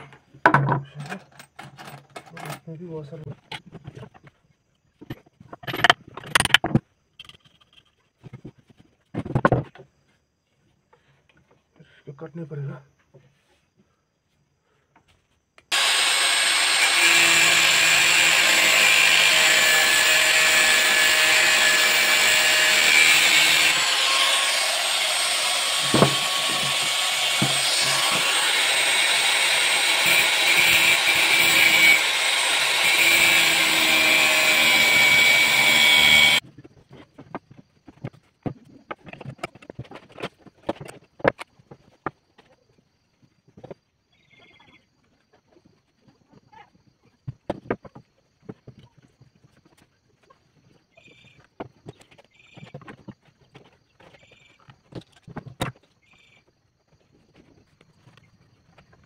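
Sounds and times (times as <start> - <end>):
angle grinder cutting wood: 15.7 - 36.4.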